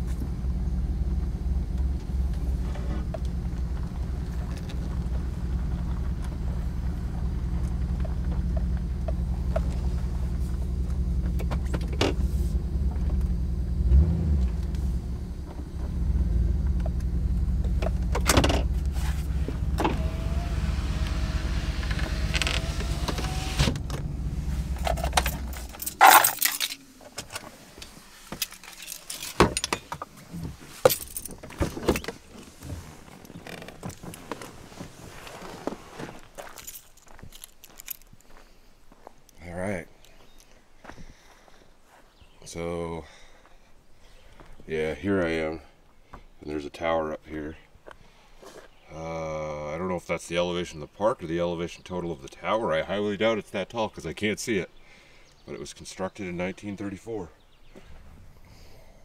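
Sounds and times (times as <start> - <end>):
truck engine rumbling: 0.0 - 38.3
car door opening: 16.6 - 36.2
keys jingling: 24.6 - 27.0, 28.4 - 29.9, 30.8 - 31.8, 36.4 - 38.4.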